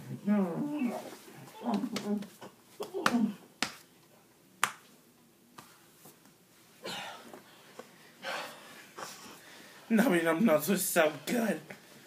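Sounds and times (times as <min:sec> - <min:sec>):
hand slapping belly: 0:01.6 - 0:03.9, 0:04.6 - 0:06.2.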